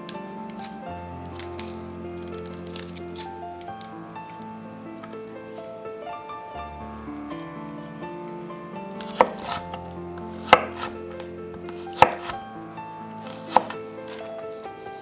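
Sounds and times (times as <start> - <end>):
knife chopping on wooden board: 9.0 - 9.7, 10.4 - 11.0, 11.7 - 12.4, 13.2 - 14.2.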